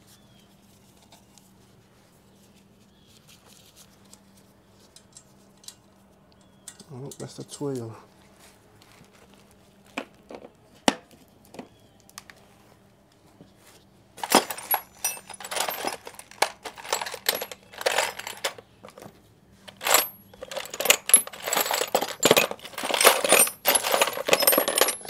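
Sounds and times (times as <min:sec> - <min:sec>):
metal sockets clinking: 0:14.2 - 0:19.1, 0:19.7 - 0:25.0.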